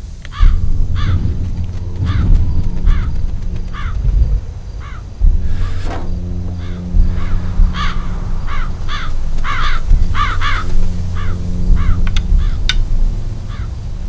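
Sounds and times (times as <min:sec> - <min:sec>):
low steady rumble: 0:00.0 - 0:14.0
crows cawing: 0:00.3 - 0:13.8
sharp clicks: 0:11.7 - 0:13.0.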